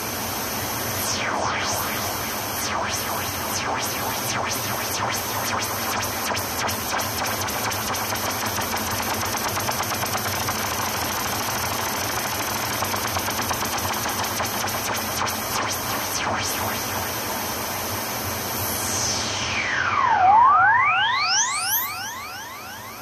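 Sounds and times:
electronic ambient music: 18.6s - 23.0s.

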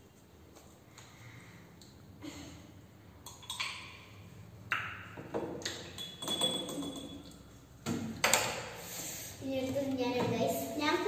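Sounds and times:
metal spoon clinking on glass jar: 5.9s - 7.4s.

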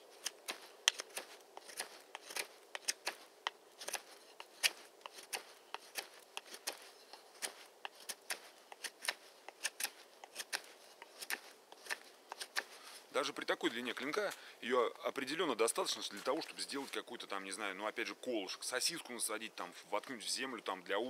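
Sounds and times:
knife whittling wood: 0.1s - 13.0s.

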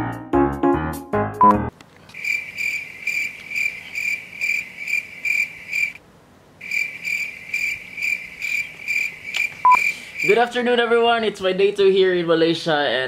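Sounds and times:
cricket chirping: 2.1s - 6.0s, 6.6s - 10.4s.

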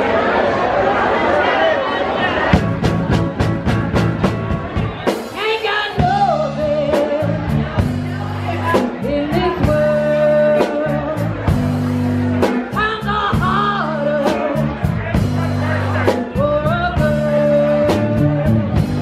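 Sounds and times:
bass guitar: 2.4s - 19.0s
electric guitar: 2.5s - 19.0s
drum and cymbal beat: 2.6s - 10.0s, 10.6s - 19.0s
woman singing: 5.4s - 7.6s, 8.6s - 11.4s, 12.7s - 14.8s, 16.4s - 18.9s.

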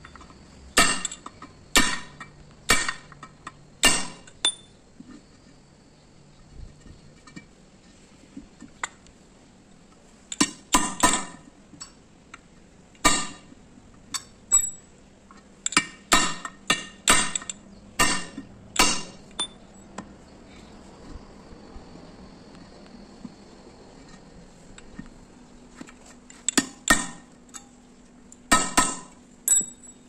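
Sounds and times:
hammer clanking on steel: 0.8s - 3.1s, 3.8s - 4.7s, 13.0s - 13.5s, 15.7s - 19.6s, 28.5s - 29.9s.

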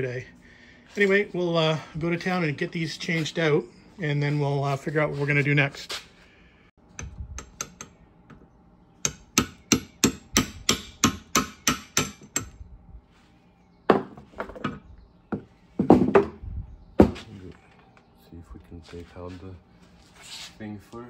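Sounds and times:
hammer tapping metal: 6.9s - 8.0s, 9.0s - 12.6s.

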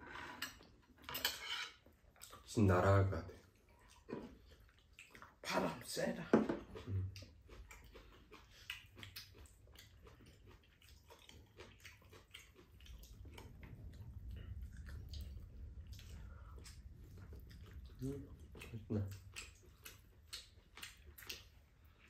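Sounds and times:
faint chewing: 0.0s - 2.6s, 3.2s - 22.0s
low rumble: 12.6s - 20.1s.

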